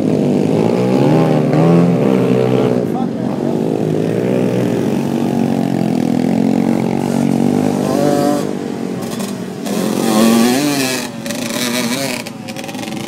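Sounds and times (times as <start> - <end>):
dirt bike engines revving: 0.0 - 13.0.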